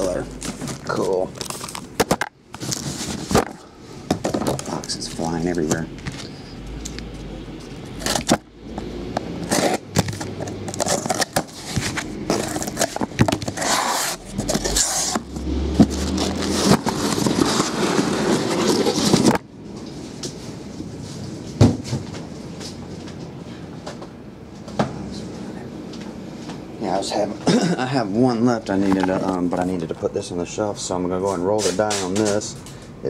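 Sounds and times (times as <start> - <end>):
cardboard scraping and rustling: 0.0 - 3.6, 7.7 - 8.4, 9.4 - 22.2.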